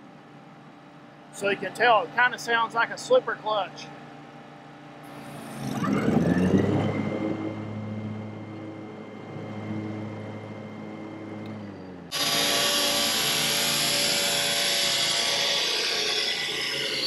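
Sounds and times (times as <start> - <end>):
mower blade whine: 5.0 - 17.0
mower engine hum: 5.0 - 17.0.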